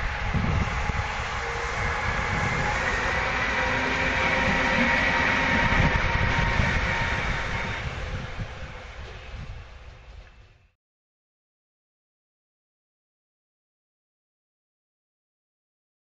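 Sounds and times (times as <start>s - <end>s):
freight train passing: 0.0s - 10.6s
locomotive high whine: 0.0s - 10.7s.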